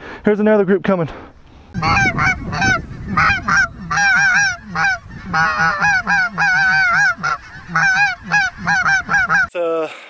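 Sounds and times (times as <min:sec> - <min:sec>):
goose call yelps: 0:01.8 - 0:09.5.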